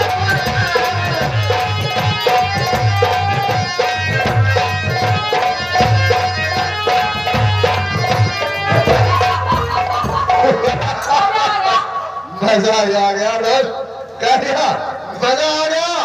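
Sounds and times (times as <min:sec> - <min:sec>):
hand drums fast rhythm: 0:00.0 - 0:11.5
held melodic tone: 0:00.0 - 0:12.0.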